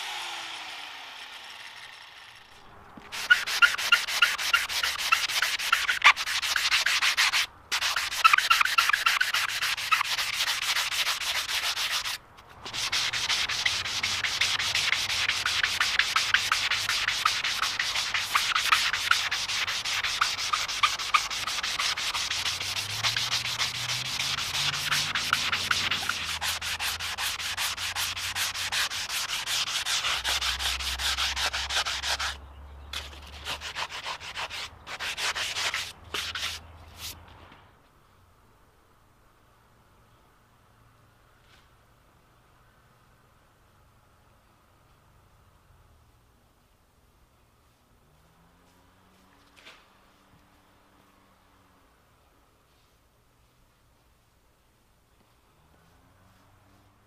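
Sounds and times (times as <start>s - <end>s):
hand sanding with sanding block: 3.1s - 32.4s, 33.0s - 37.2s.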